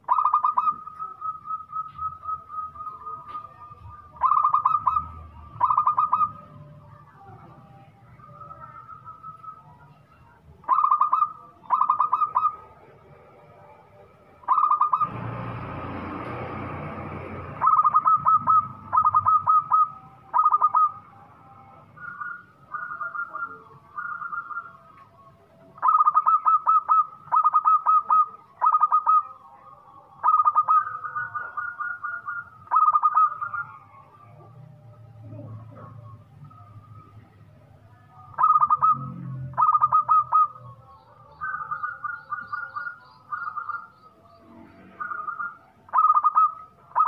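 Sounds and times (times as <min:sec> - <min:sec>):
dove cooing: 0:00.0 - 0:12.9, 0:14.4 - 0:15.6, 0:16.3 - 0:25.2, 0:25.8 - 0:29.4, 0:30.2 - 0:34.5, 0:38.2 - 0:47.0.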